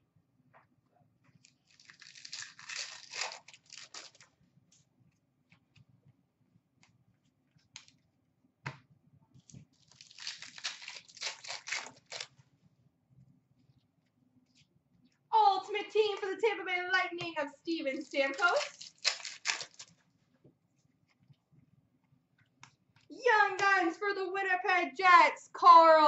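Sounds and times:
wrappers tearing and crinkling: 0:01.5 - 0:04.3, 0:09.7 - 0:12.3, 0:17.9 - 0:20.0.

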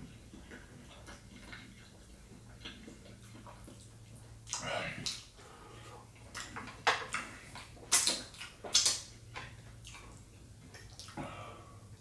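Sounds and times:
soft chewing: 0:00.0 - 0:12.0
mouth smacks and clicks: 0:06.3 - 0:10.1.

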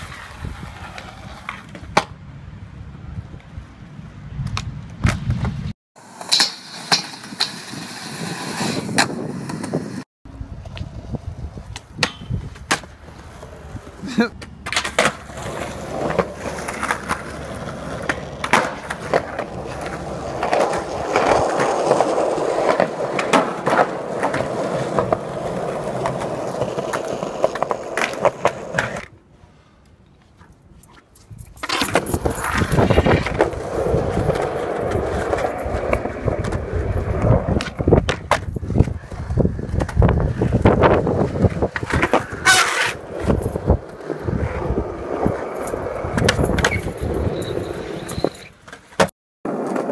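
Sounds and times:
skateboard wheels rolling on concrete: 0:00.0 - 0:49.9
skateboard clacks: 0:14.3 - 0:29.1, 0:31.6 - 0:49.9.

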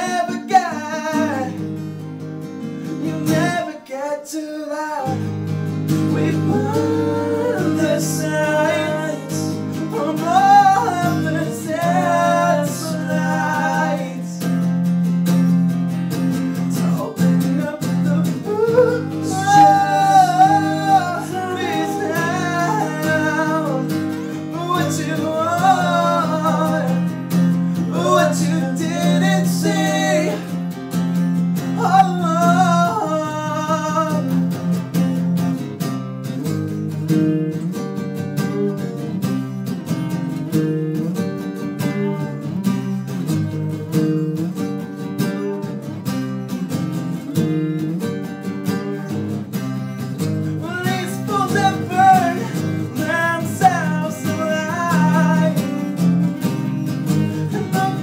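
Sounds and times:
man singing: 0:00.0 - 0:01.7, 0:02.8 - 0:05.3, 0:05.9 - 0:14.5, 0:16.7 - 0:30.6, 0:31.6 - 0:34.6, 0:48.7 - 0:49.4, 0:50.6 - 0:58.0
acoustic guitars playing: 0:00.0 - 0:58.0.

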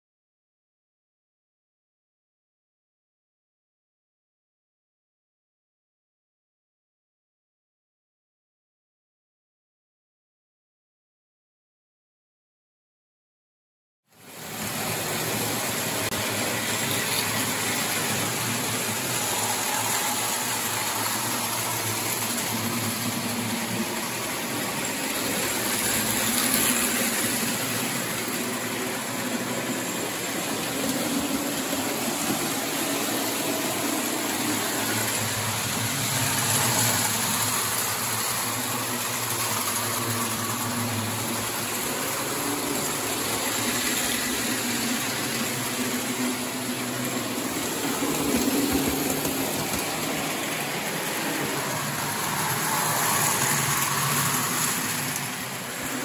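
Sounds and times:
model train rumbling on metal rails: 0:14.2 - 0:56.0.

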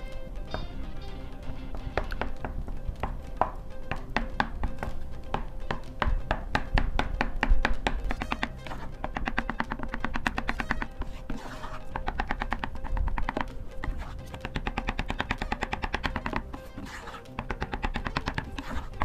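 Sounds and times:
background music: 0:00.0 - 0:19.0
spatula scraping pan: 0:08.0 - 0:19.0.

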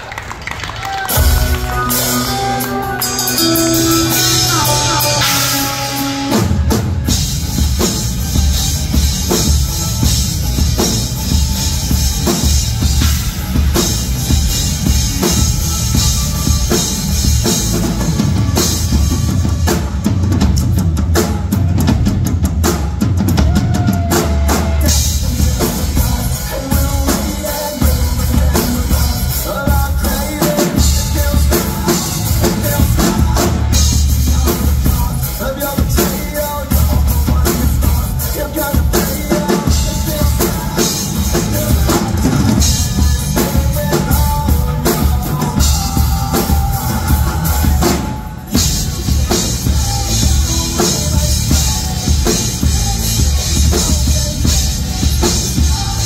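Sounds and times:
drum kit solo: 0:00.2 - 0:56.0.

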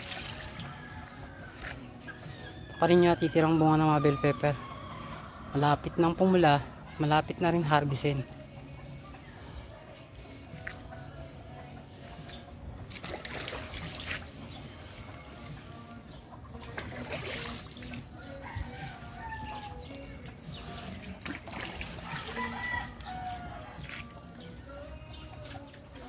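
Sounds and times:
water trickling: 0:00.0 - 0:01.4, 0:12.8 - 0:26.0
chickens clucking: 0:14.4 - 0:25.9.

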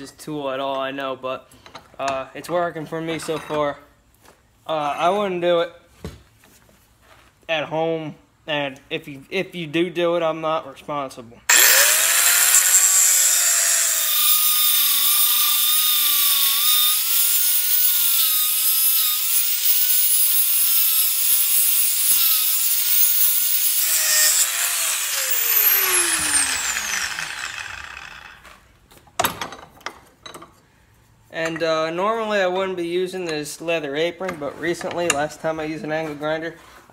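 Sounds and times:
angle grinder cutting steel: 0:11.5 - 0:28.6
grinder spinning down: 0:11.5 - 0:28.6.

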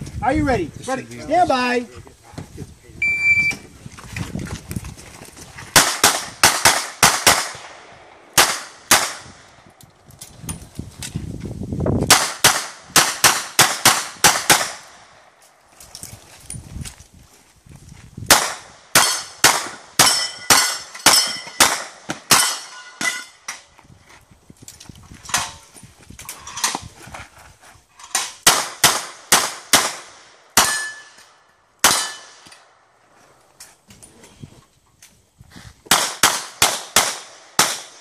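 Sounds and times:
pistol shots: 0:05.7 - 0:09.4, 0:12.1 - 0:14.9, 0:18.3 - 0:22.7, 0:28.4 - 0:31.1, 0:31.8 - 0:32.4, 0:35.9 - 0:38.0.

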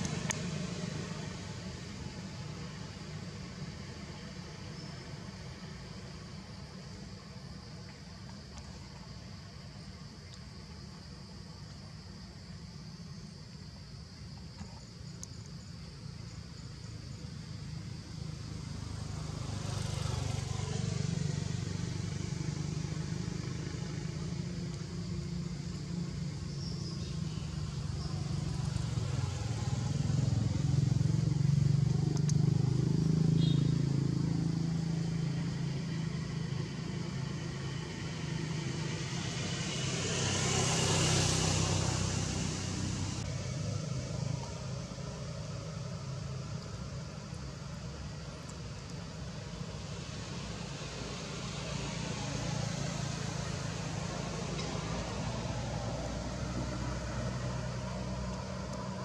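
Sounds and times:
road traffic engine hum: 0:00.0 - 0:59.0
vehicle passing close: 0:17.8 - 0:59.0.

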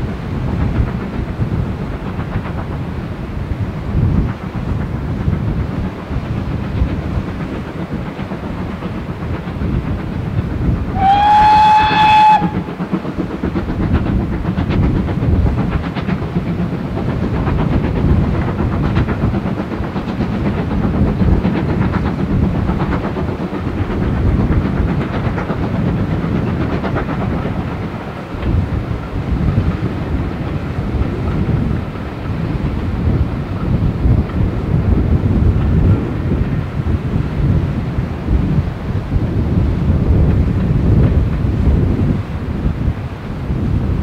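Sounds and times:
steam locomotive exhaust rumble: 0:00.0 - 0:44.0
steam whistle blast: 0:11.0 - 0:12.7.

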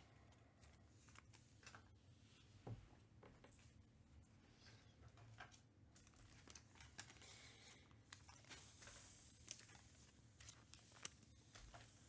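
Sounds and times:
cards and wrappers rustling: 0:05.2 - 0:12.0.

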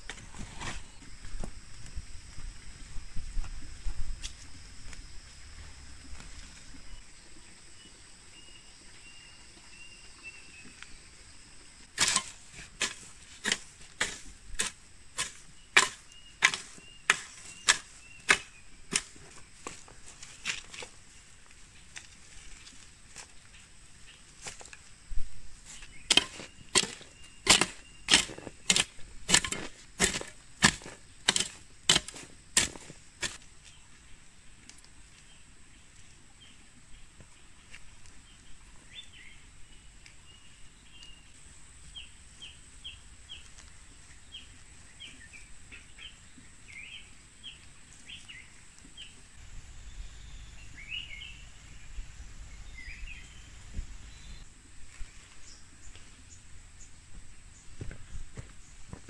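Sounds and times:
hand tool striking: 0:12.0 - 0:19.8, 0:26.1 - 0:33.4
birds chirping: 0:25.7 - 0:33.4, 0:37.3 - 0:56.9.

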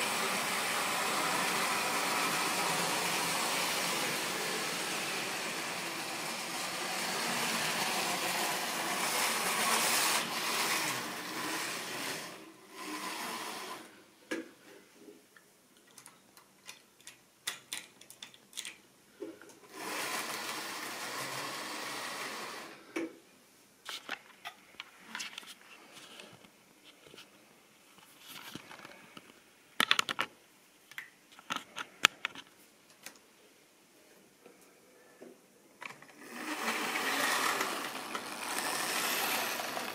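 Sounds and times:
model train motor and wheels rumbling: 0:00.0 - 0:13.9, 0:19.7 - 0:22.8, 0:35.9 - 0:39.9
wheels clicking over rail joints: 0:36.2 - 0:39.9.

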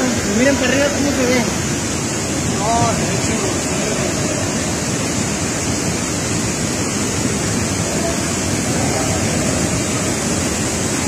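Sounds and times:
waterfall rushing into pool: 0:00.0 - 0:11.0.

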